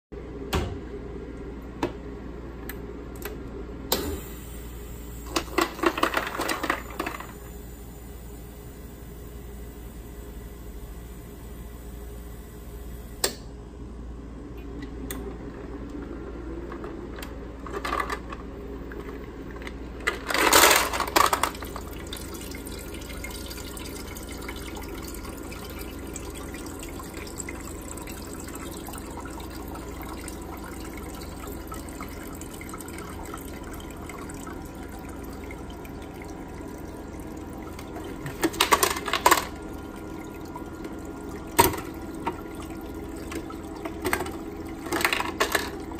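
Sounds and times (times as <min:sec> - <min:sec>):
ice maker humming: 0:00.2 - 0:45.9
ice cubes clattering: 0:20.1 - 0:21.9, 0:38.2 - 0:39.6, 0:43.9 - 0:45.9.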